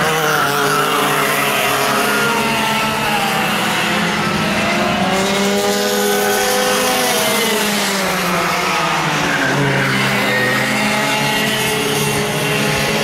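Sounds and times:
go-kart engines racing: 0.0 - 13.0.

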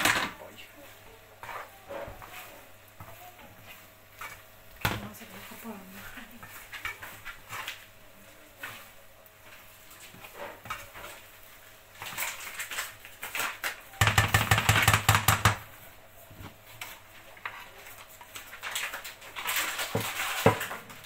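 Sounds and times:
spoon scraping a frying pan: 1.4 - 7.9, 8.6 - 13.7.

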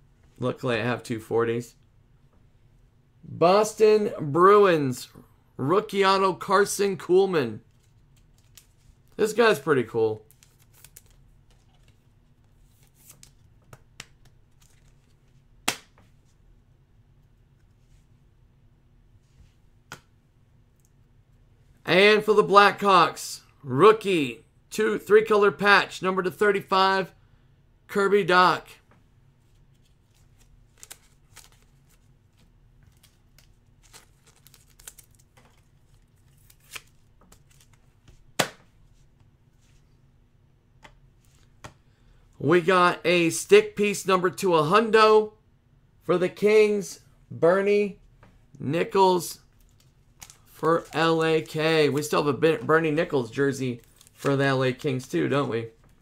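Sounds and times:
cards rustling: 7.5 - 16.3, 29.4 - 39.9, 48.8 - 56.0
cards flicking: 15.6 - 16.0
sharp card snap: 15.6 - 16.0, 38.4 - 38.7.

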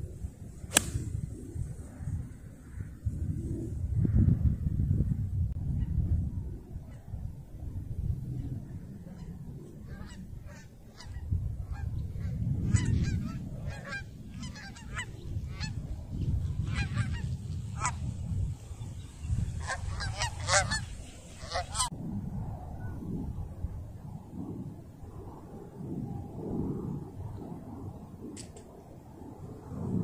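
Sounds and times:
wind rumbling on microphone: 0.0 - 30.0
geese honking: 19.6 - 21.9.

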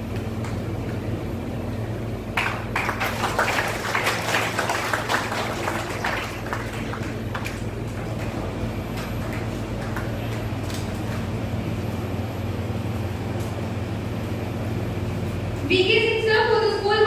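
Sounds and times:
low electrical hum: 0.0 - 17.0
audience clapping: 2.3 - 11.5.

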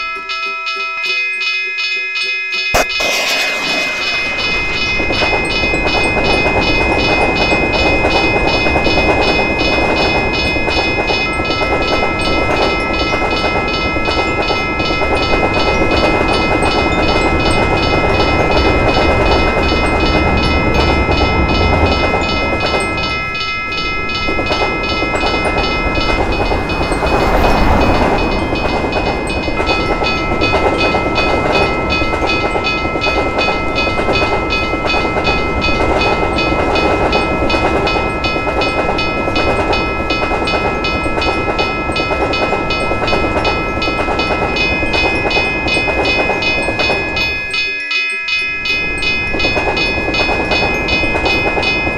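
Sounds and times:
crossing warning bell ringing: 0.0 - 51.9
passing trains rumbling: 2.8 - 47.6, 48.4 - 51.9.

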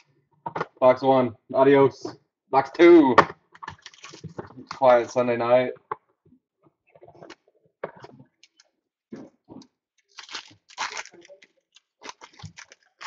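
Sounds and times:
foil wrapper crinkling and tearing: 3.8 - 4.3, 10.0 - 13.0.

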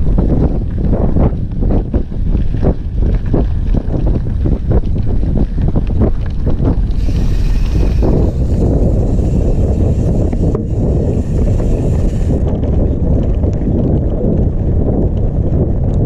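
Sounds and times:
bike rattling over stones: 0.0 - 15.7
wind buffeting microphone: 0.0 - 16.0
tyres hissing on loose grit: 6.8 - 12.5.

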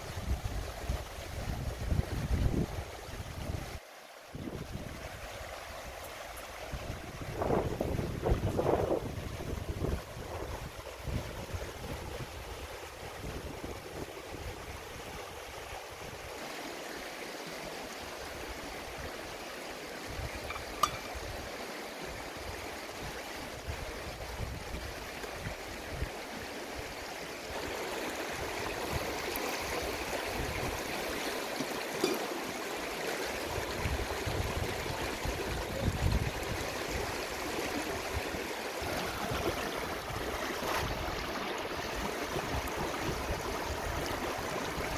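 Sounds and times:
river rushing over rocks: 0.0 - 44.9.

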